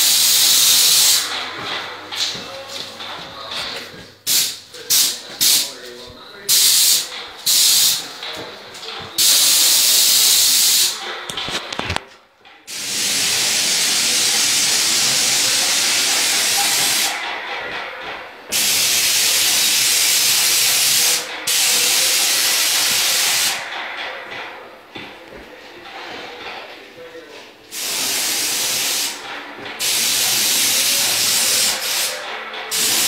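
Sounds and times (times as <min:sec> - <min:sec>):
paint spray gun hissing: 0:00.0 - 0:01.3, 0:06.5 - 0:08.0, 0:09.2 - 0:11.0, 0:12.7 - 0:17.2, 0:18.5 - 0:23.6, 0:27.7 - 0:29.2, 0:29.8 - 0:32.1, 0:32.7 - 0:33.0.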